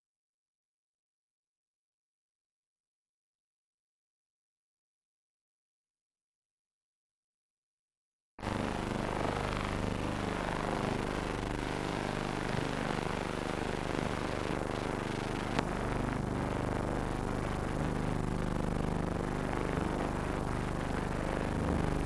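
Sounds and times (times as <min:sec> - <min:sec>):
film soundtrack hiss and hum: 0:08.4 - 0:22.0.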